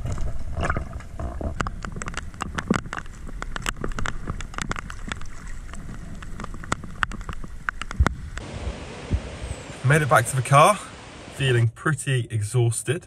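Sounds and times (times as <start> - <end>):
sharp crackling clicks: 0.0 - 8.5
underwater rumble: 0.0 - 11.5.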